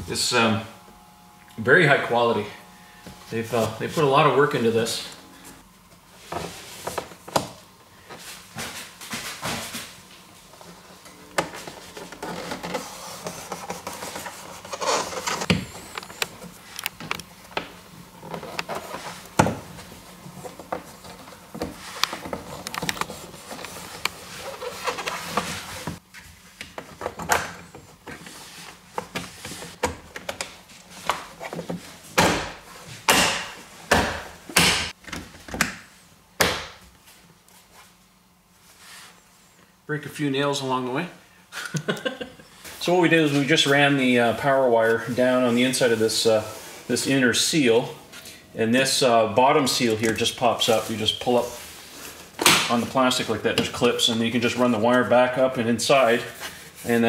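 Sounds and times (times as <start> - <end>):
rustling and rubbing of trim: 11.5 - 16.8, 18.1 - 26.6.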